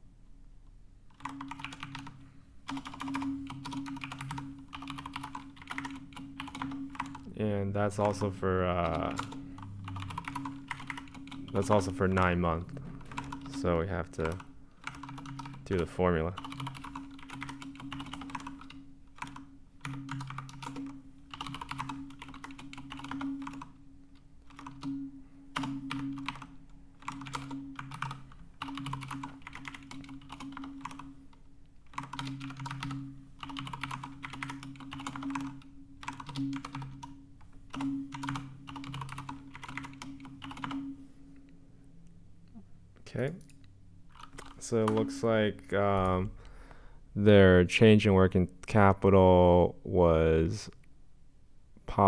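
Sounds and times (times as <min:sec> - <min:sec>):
typing on computer keyboard: 0:01.1 - 0:07.3, 0:08.0 - 0:12.4, 0:13.0 - 0:31.2, 0:31.9 - 0:40.9, 0:44.1 - 0:45.1.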